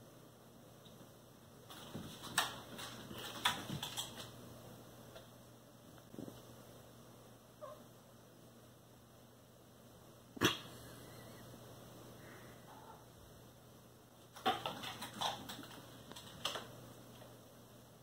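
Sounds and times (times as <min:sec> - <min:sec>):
cats moving on hardwood floor: 0:01.6 - 0:04.4, 0:14.2 - 0:17.3.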